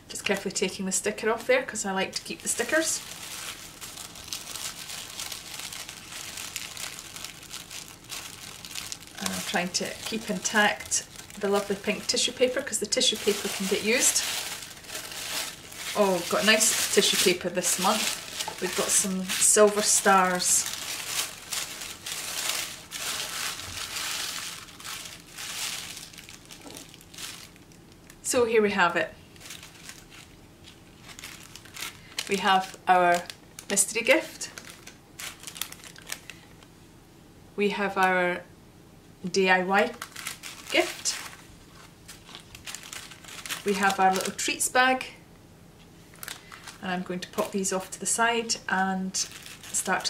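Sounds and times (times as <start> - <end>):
tissue paper crinkling: 2.1 - 28.2, 29.3 - 36.4, 39.9 - 44.5, 46.2 - 46.8, 49.2 - 50.0.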